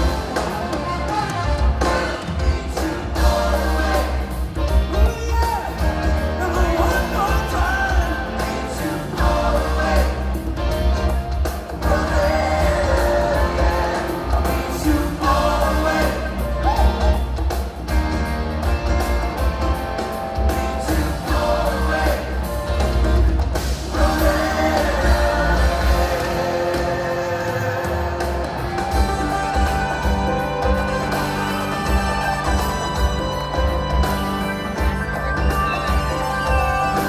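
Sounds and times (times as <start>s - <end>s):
boomy bass: 0.0s - 37.0s
live rock band: 0.0s - 37.0s
male singer: 4.9s - 10.3s, 11.8s - 16.8s, 23.9s - 28.4s.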